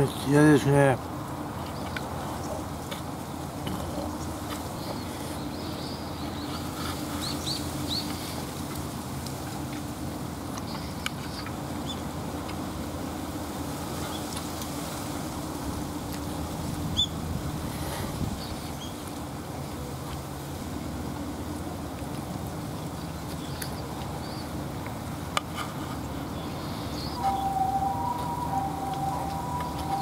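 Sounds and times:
bird chirps: 0:26.6 - 0:30.0.

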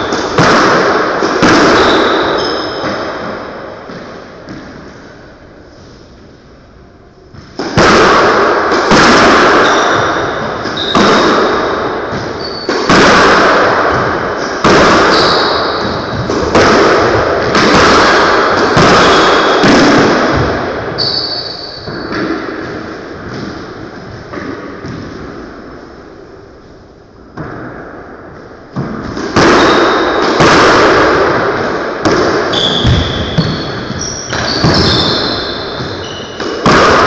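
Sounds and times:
squash ball striking racquets and walls: 0:00.0 - 0:05.6, 0:06.2 - 0:37.0
shoes squeaking on wooden floor: 0:01.8 - 0:03.0, 0:12.4 - 0:12.7, 0:32.5 - 0:36.4.

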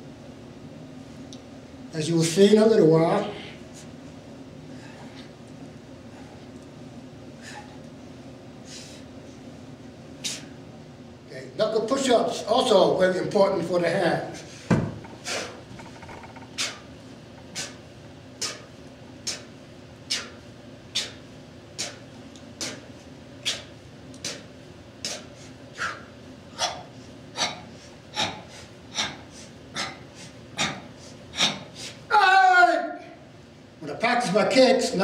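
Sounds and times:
man exhaling forcefully: 0:15.2 - 0:15.6.

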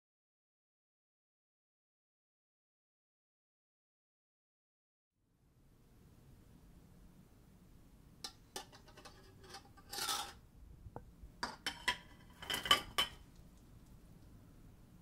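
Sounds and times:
dish clinking against metal colander: 0:08.3 - 0:10.4, 0:11.4 - 0:13.2.

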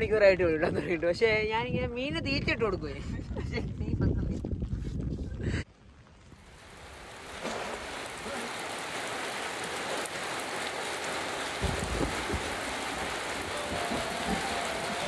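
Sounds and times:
steady rain falling: 0:02.6 - 0:15.0.

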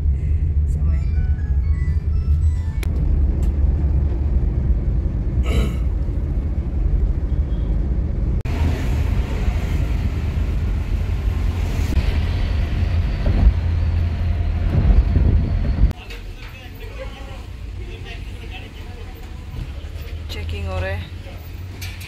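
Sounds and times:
car engine and road rumble: 0:00.0 - 0:22.0
road hiss: 0:08.5 - 0:13.1.

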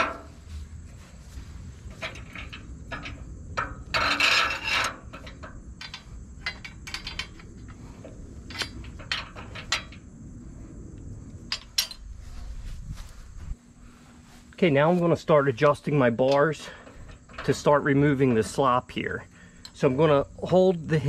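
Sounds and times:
metal hardware clinking and knocking: 0:00.0 - 0:00.4, 0:01.9 - 0:10.1, 0:11.4 - 0:12.1, 0:16.2 - 0:18.8
metal scraping rattle: 0:00.0 - 0:13.5, 0:14.7 - 0:21.0.

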